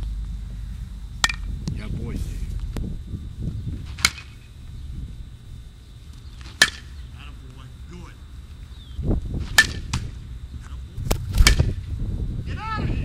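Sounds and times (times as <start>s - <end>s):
wind on microphone: 0.0s - 5.8s, 8.8s - 13.0s
baseball bat cracking ball: 1.2s - 1.5s, 3.9s - 4.4s, 6.4s - 7.0s, 9.4s - 10.2s, 11.0s - 11.8s.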